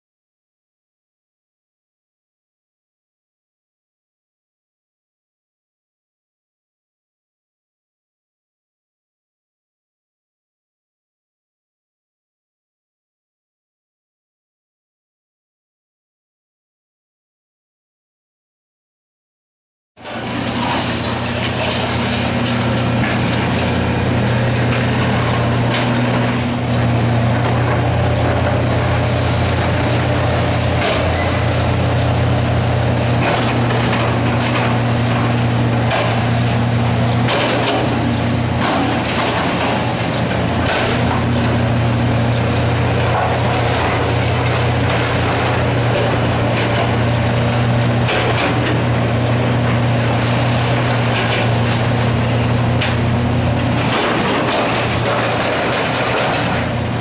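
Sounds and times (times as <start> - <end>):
excavator diesel engine running: 20.0 - 57.0
wood and debris crashing: 20.1 - 57.0.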